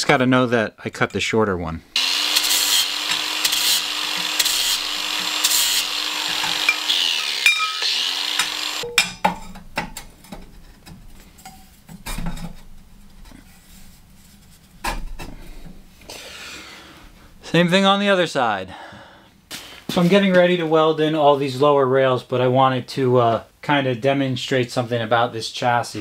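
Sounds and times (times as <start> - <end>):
angle grinder grinding steel: 2.0 - 8.9
steel tube clanks and knocks: 8.9 - 12.6.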